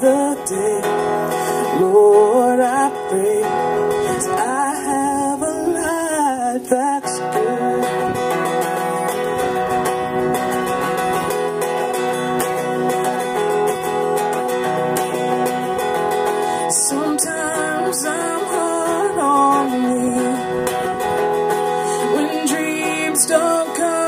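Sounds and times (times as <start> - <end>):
person singing: 0.0 - 9.0, 16.2 - 24.0
acoustic guitar strumming: 0.0 - 24.0.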